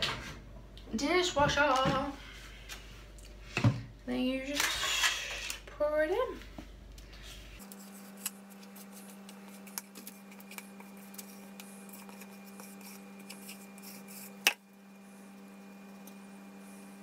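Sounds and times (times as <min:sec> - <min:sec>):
spatula scraping mixing bowl: 0:08.8 - 0:14.5.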